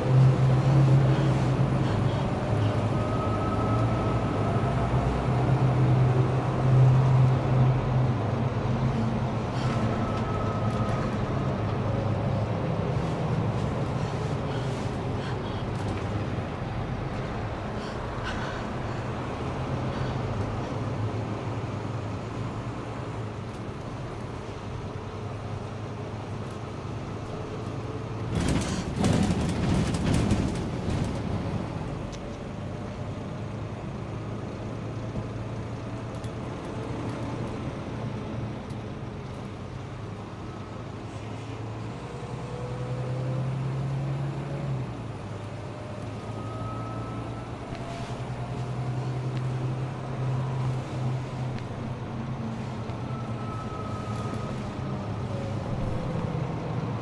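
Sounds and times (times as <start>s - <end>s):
bus engine drone and whine: 0.0s - 57.0s
rattles and knocks: 28.2s - 31.7s.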